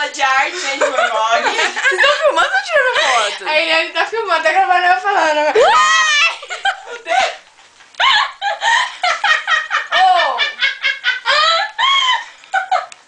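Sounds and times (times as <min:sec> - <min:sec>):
young women laughing: 0:00.6 - 0:03.4, 0:05.3 - 0:13.0.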